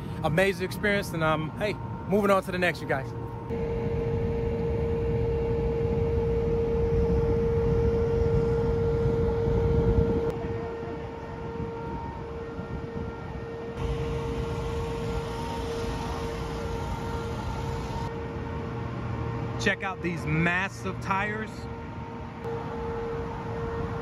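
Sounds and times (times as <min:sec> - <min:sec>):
steady droning hum: 0:00.0 - 0:24.0
wind noise on microphone: 0:03.5 - 0:18.1.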